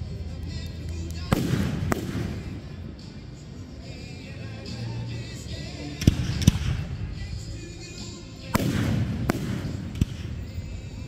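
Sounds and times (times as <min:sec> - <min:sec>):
fireworks bursting with sharp bangs: 0:01.3 - 0:02.7, 0:06.0 - 0:07.0, 0:08.5 - 0:10.5.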